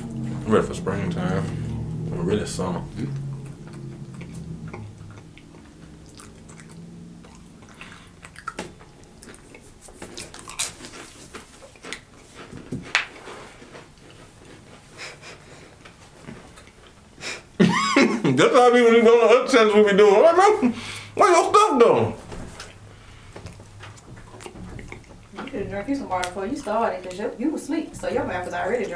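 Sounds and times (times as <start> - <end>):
crackers being chewed: 2.9 - 17.6, 22.5 - 27.2.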